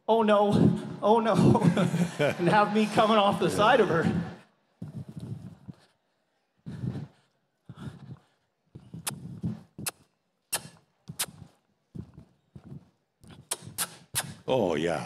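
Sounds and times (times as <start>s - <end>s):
horse hooves thudding on dirt: 11.1s - 13.8s
sharp clicks: 12.1s - 14.4s.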